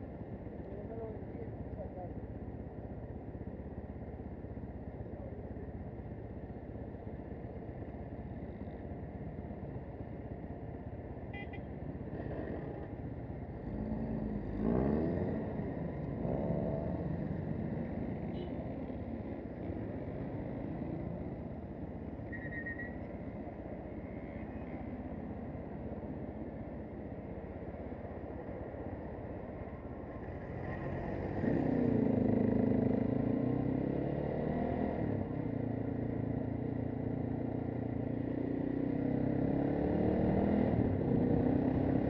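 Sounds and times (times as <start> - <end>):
street traffic: 0.0 - 42.0
engine revving and pulling away: 13.6 - 17.3, 30.7 - 36.4, 38.2 - 42.0.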